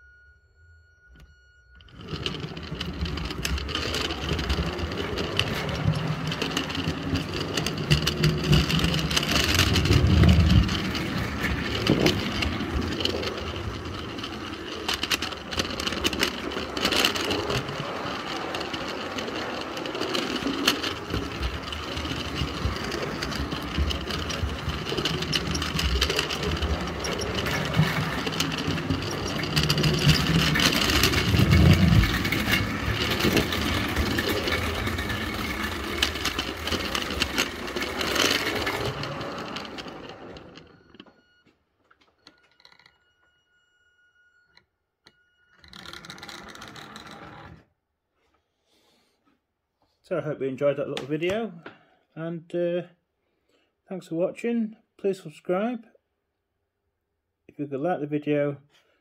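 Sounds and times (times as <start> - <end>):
model electric locomotive running: 1.8 - 41.2
wagon wheels clicking on track: 1.8 - 41.2, 45.6 - 47.6.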